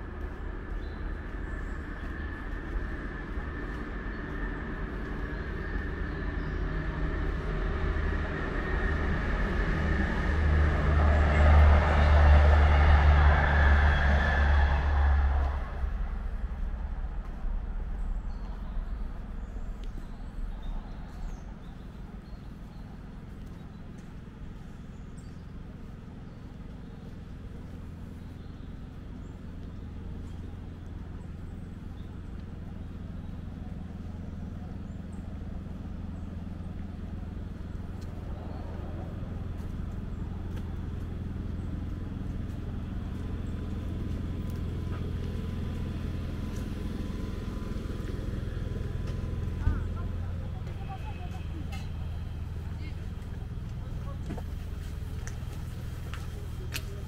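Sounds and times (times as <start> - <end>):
small birds chirping: 0.0 - 9.4, 15.9 - 57.0
engine running steadily: 0.0 - 57.0
steady low rumble: 0.0 - 57.0.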